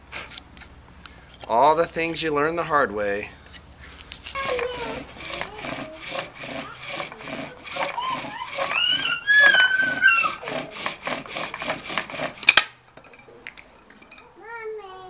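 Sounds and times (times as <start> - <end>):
wooden spindle rasping: 4.3 - 14.2
high squeals: 4.4 - 10.7.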